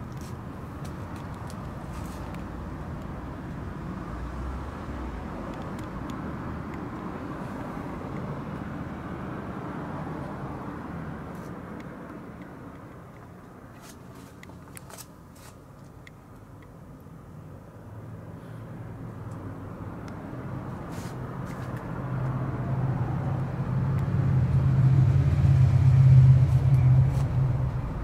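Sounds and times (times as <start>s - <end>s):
low rumbling noise: 22.6s - 28.0s.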